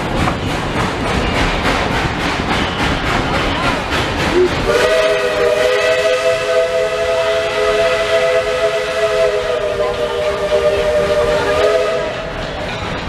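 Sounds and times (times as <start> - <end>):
steam hissing: 0.0 - 13.0
steam locomotive chime whistle: 4.4 - 12.6.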